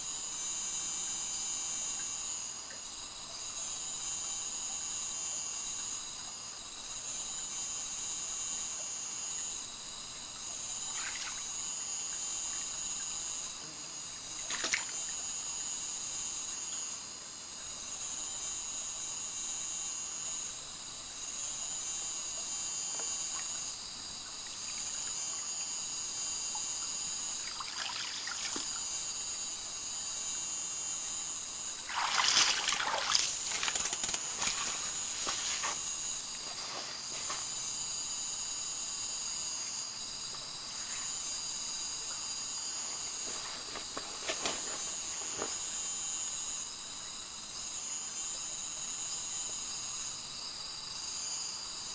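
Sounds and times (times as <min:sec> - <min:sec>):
high insect buzz: 0:00.0 - 0:51.9
water splashing in stream: 0:31.9 - 0:33.7.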